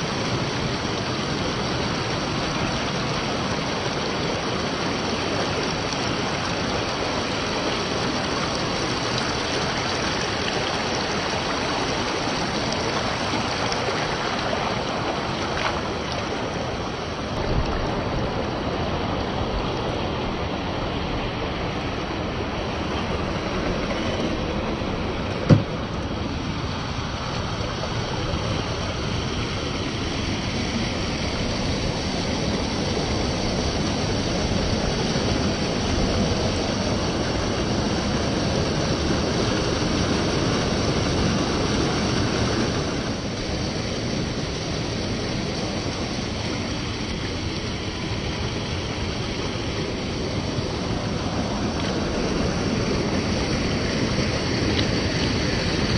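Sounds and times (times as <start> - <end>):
water rushing: 0.0 - 55.9
sharp knock: 25.5 - 25.7.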